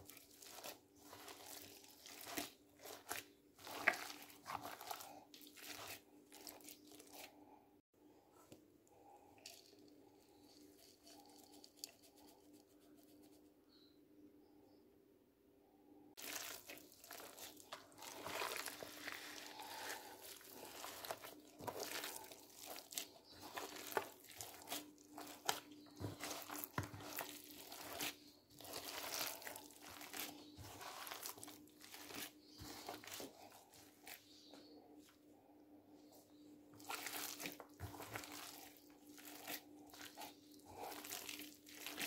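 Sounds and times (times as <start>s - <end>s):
hand kneading wet meat mixture: 0.0s - 7.6s, 8.4s - 13.0s, 16.2s - 42.0s.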